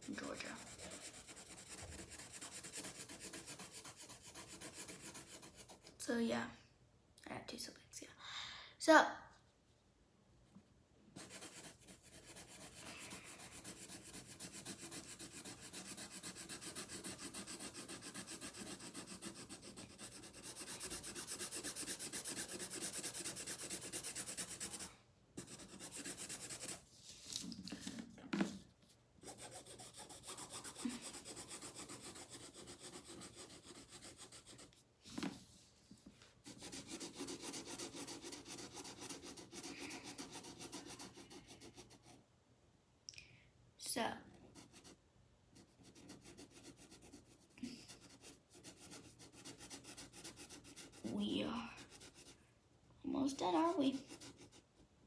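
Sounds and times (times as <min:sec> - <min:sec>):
marker scribbling on paper: 0:00.0 - 0:06.0, 0:11.2 - 0:26.8, 0:29.2 - 0:35.3, 0:36.4 - 0:42.1, 0:45.6 - 0:52.4, 0:53.3 - 0:54.7.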